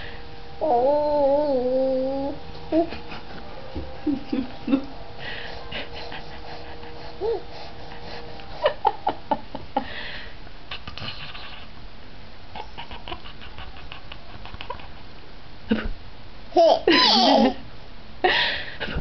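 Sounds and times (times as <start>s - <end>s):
baby giggling: 16.5s - 17.6s.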